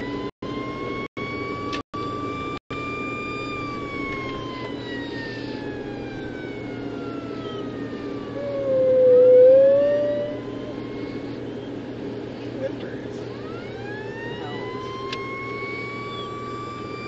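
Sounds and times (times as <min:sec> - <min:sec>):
emergency vehicle siren wailing: 0:00.0 - 0:12.3, 0:13.1 - 0:17.0
car cabin engine and road hum: 0:00.8 - 0:17.0
dog howling: 0:04.5 - 0:11.7.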